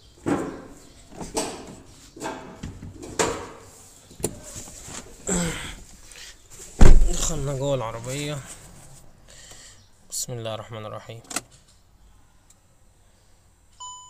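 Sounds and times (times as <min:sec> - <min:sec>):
soft scuffs and rustles: 0:03.7 - 0:09.2.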